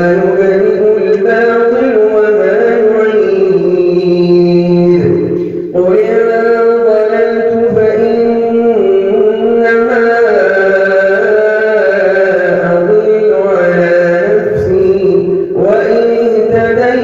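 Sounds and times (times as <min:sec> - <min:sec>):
man reciting melodically: 0:00.0 - 0:17.0.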